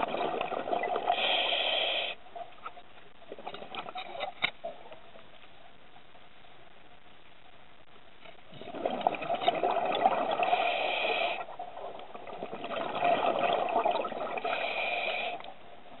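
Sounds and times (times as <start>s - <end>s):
diver exhaling bubbles underwater: 8.5s - 11.5s, 12.1s - 15.4s.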